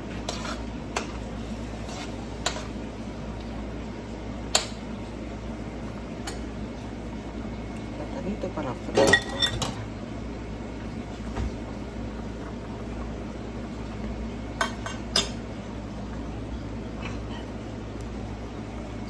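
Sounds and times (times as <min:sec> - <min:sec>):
metal spoon clinking against pans: 0:09.0 - 0:09.8.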